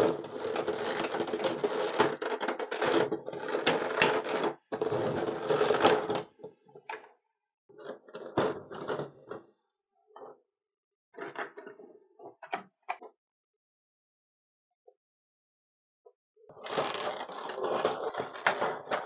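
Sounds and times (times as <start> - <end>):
plastic trays crackling and clicking: 0.1 - 6.3, 16.6 - 19.0.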